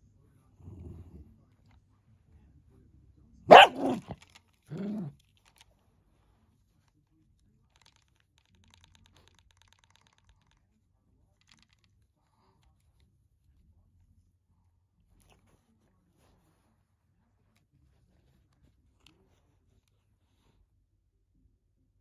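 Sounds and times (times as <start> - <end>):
small dog barking: 3.5 - 5.1.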